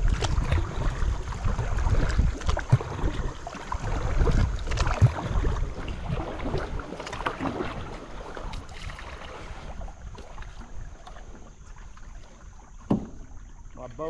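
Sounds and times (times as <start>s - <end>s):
paddle strokes and water splashing: 0.0s - 14.0s
small knocks on boat: 10.1s - 13.6s.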